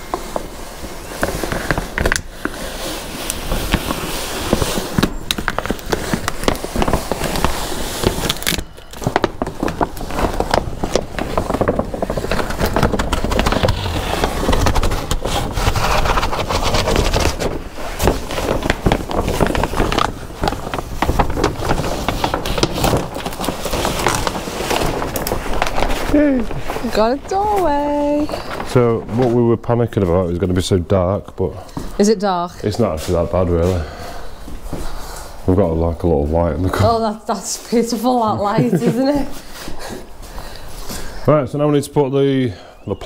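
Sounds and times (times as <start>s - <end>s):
plastic sheeting crinkling: 0.0s - 43.0s.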